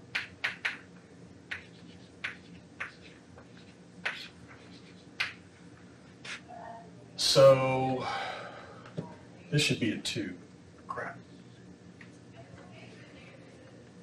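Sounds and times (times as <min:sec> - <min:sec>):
chalk tapping on chalkboard: 0:01.5 - 0:05.4.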